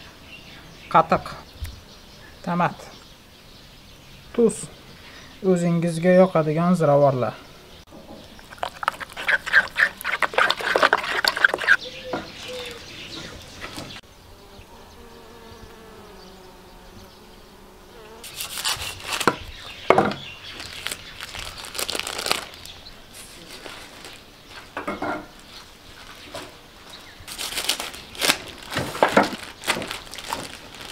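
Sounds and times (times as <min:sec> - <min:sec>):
sharp rustles and knocks: 0:07.9 - 0:12.5, 0:18.2 - 0:22.0, 0:23.6 - 0:30.9
spoon stirring in wooden bowl: 0:08.4 - 0:11.8
honeybee buzzing: 0:12.6 - 0:19.8.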